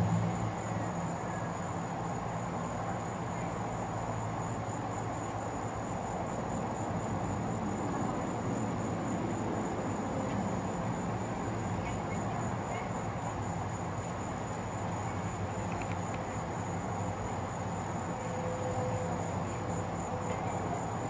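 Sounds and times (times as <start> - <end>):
constant high-pitched tone: 0.0 - 21.0.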